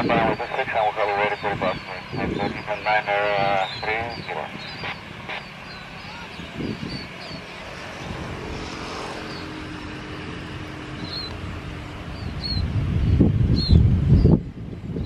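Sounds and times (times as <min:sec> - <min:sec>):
jet engines running: 0:00.0 - 0:15.0
bird chirps: 0:00.2 - 0:07.5
motorcycle passing: 0:01.4 - 0:14.3.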